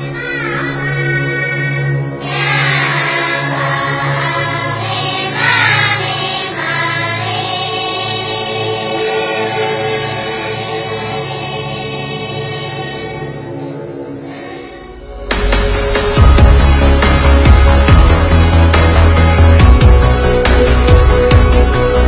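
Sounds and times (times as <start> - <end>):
choir singing held notes: 0.0 - 19.2
sustained low chords: 8.2 - 22.0.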